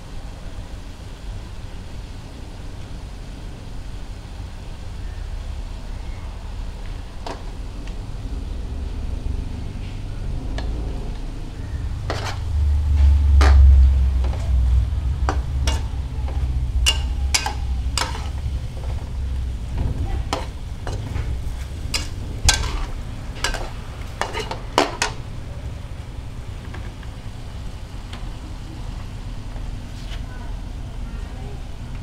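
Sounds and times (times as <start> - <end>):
frying sizzle: 0.0 - 32.0
low rumble: 1.4 - 29.9
metal spatula scraping a wok: 11.8 - 19.2, 20.2 - 25.3.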